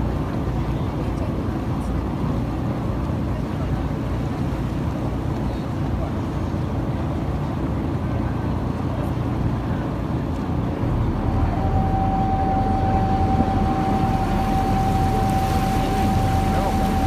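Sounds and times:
boat engines rumbling: 0.0s - 17.0s
steady high whine: 10.6s - 17.0s.

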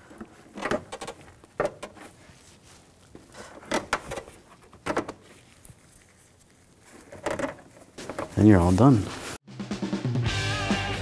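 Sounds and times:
plastic clicks and knocks: 0.2s - 2.0s.

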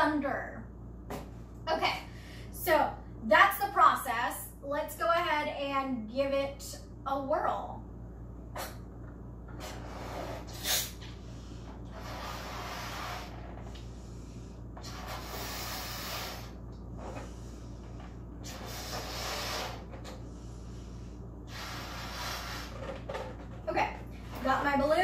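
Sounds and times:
person blowing up balloon: 8.5s - 8.9s, 9.5s - 11.1s, 11.8s - 13.9s, 14.8s - 17.3s, 18.4s - 20.2s, 21.5s - 23.2s.

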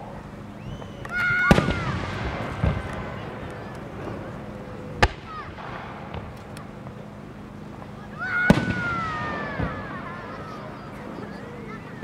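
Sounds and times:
firework shells bursting: 1.0s - 7.1s.

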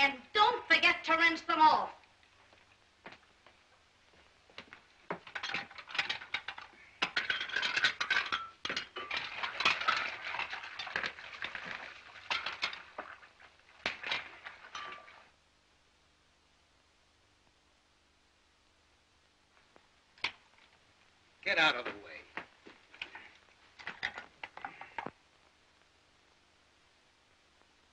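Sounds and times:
crockery and cutlery clinking: 5.2s - 11.2s, 14.0s - 15.3s.

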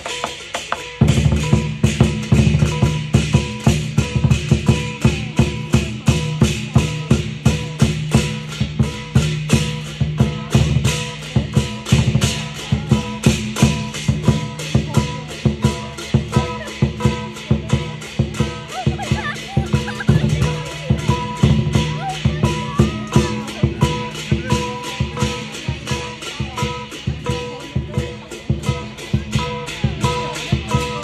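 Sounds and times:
big drum beating: 0.0s - 31.0s
cymbals clashing: 0.0s - 31.0s.

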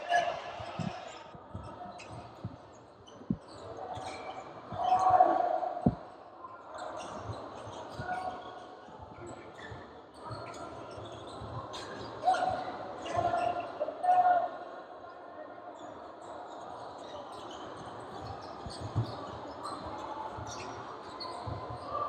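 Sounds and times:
sneakers squeaking on hardwood: 18.2s - 21.9s.

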